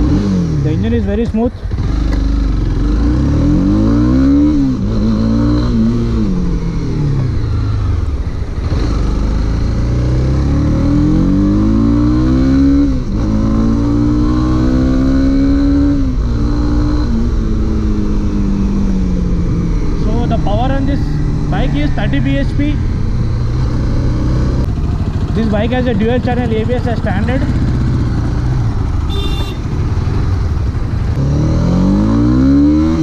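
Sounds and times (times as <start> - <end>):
motorcycle engine accelerating: 0.0 - 33.0.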